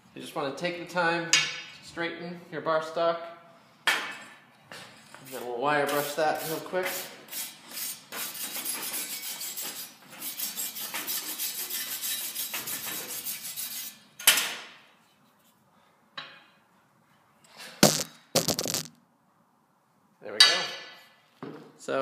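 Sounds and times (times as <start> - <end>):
wire brush scrubbing steel pipe: 5.2 - 14.0.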